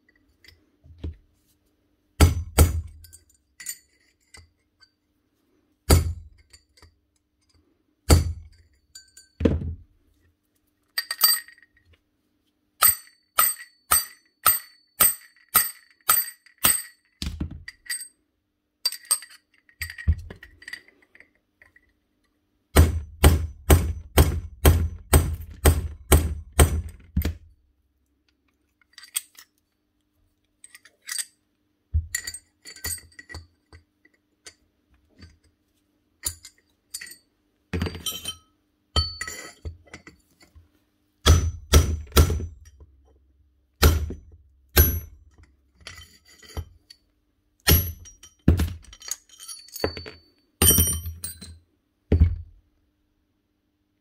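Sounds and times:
hammer striking steel: 0:41.2 - 0:42.6, 0:43.8 - 0:45.2, 0:47.6 - 0:48.3.

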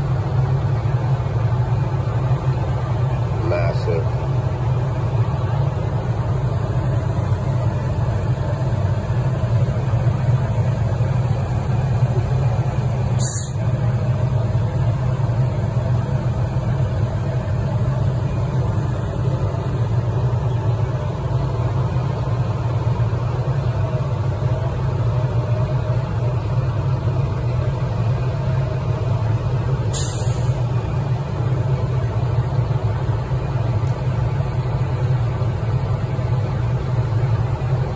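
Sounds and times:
fire engine low drone: 0:00.0 - 0:37.9
short hisses: 0:13.2 - 0:13.6, 0:29.9 - 0:30.6.

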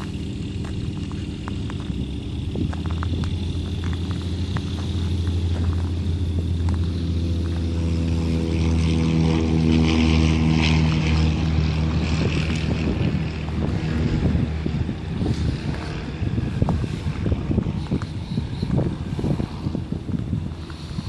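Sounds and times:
aircraft piston engine running: 0:00.0 - 0:21.0
hiss: 0:17.7 - 0:21.0.

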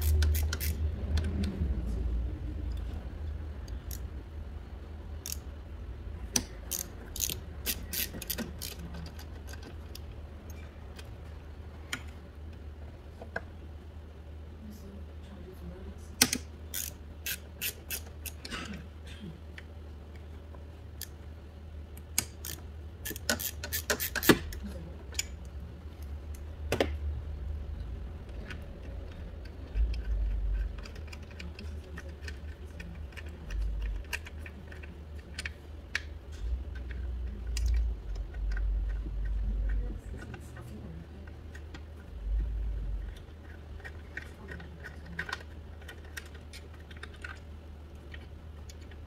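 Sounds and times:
connectors and hoses clicking: 0:00.0 - 0:01.7, 0:05.1 - 0:12.6, 0:16.2 - 0:18.8, 0:21.9 - 0:27.0, 0:28.2 - 0:49.0
low rumbles: 0:00.0 - 0:07.6, 0:36.0 - 0:46.1.

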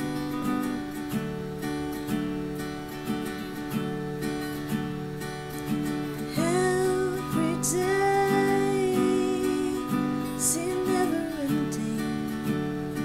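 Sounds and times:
strummed acoustic guitar: 0:00.0 - 0:13.0
person singing long notes: 0:06.3 - 0:12.6.

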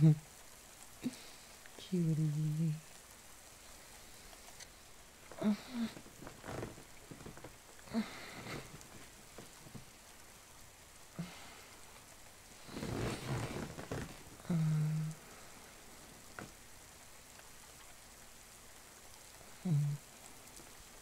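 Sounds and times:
rain falling: 0:00.0 - 0:21.0
man's soft voice sounds: 0:01.0 - 0:02.8, 0:12.7 - 0:15.4, 0:19.5 - 0:20.1
rustling: 0:02.9 - 0:18.3.

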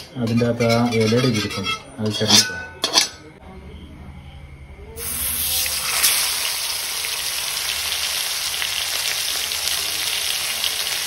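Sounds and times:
fish sizzling in hot oil: 0:05.0 - 0:11.0.

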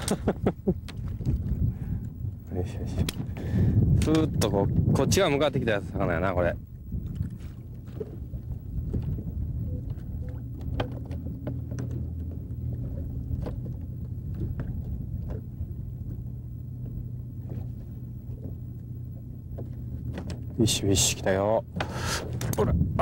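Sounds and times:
clicks and knocks on boat: 0:00.0 - 0:02.1, 0:03.0 - 0:05.0, 0:07.0 - 0:22.9
boat motor humming: 0:00.0 - 0:23.0
faint higher tone: 0:06.0 - 0:21.8.

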